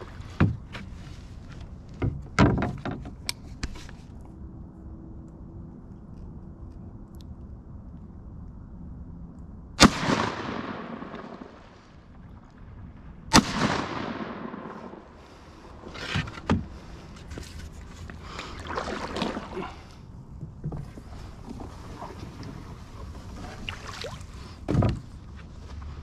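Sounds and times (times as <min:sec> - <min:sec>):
shotgun shots echoing: 0:09.8 - 0:11.7, 0:13.3 - 0:15.2.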